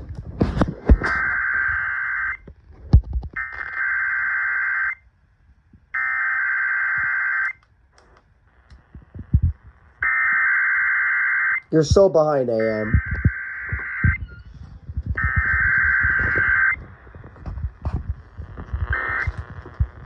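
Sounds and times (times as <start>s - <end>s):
harsh buzzing digital tones: 9.0s - 20.0s.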